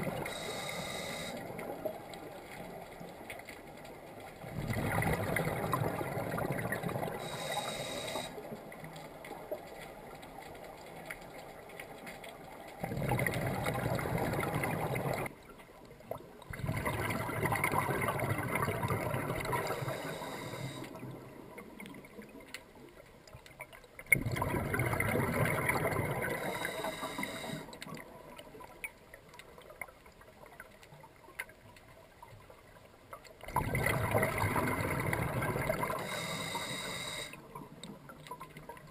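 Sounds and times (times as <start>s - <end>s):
exhaled bubbles gurgling: 0.0s - 9.7s, 12.7s - 15.4s, 16.0s - 22.9s, 24.0s - 28.8s, 33.3s - 38.9s
diver breathing through regulator: 0.2s - 1.6s, 7.2s - 8.5s, 19.5s - 21.0s, 26.2s - 27.8s, 35.7s - 37.4s.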